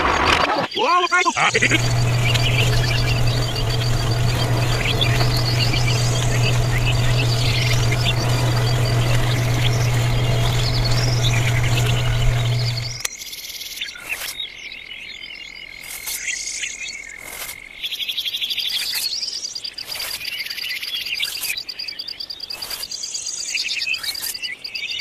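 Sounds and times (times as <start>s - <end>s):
insects trilling: 0.7s - 13.0s.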